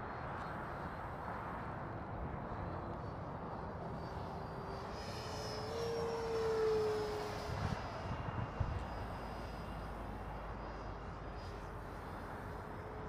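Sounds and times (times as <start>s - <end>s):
model jet fan whining: 2.9s - 13.0s.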